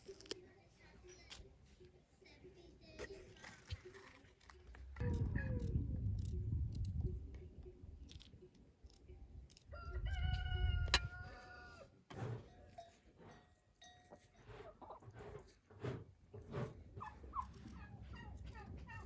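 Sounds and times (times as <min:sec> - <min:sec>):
rooster crowing: 0:09.7 - 0:11.9.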